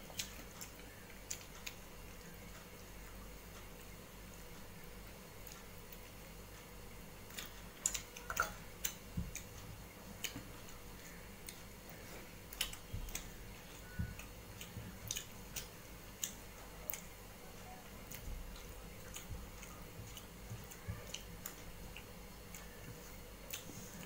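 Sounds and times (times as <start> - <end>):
lip smacks and chewing: 12.5 - 17.2, 18.0 - 23.8.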